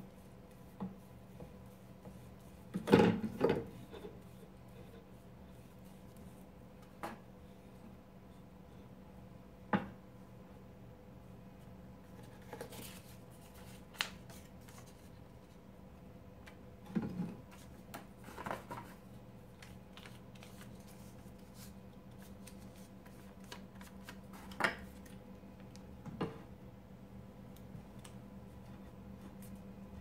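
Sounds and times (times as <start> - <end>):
faint steady hum: 0.0 - 30.0
paper rustling: 12.2 - 15.6, 17.5 - 25.2.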